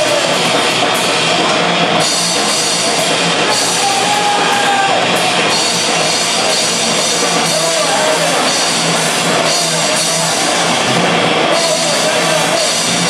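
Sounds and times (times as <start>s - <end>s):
bass guitar: 0.0s - 13.0s
drum kit with cymbals: 0.0s - 13.0s
electric guitar: 0.0s - 13.0s.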